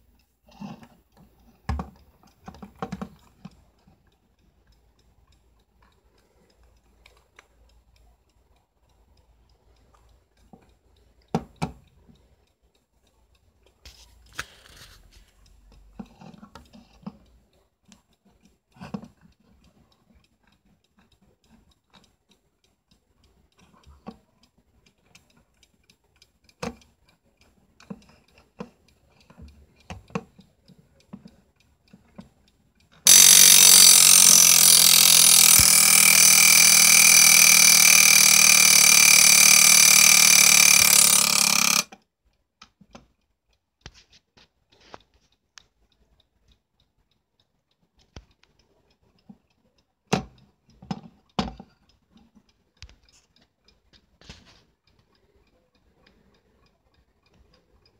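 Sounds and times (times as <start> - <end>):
alarm clock clicks and knocks: 33.1 - 41.9
alarm clock ringing: 33.1 - 41.9.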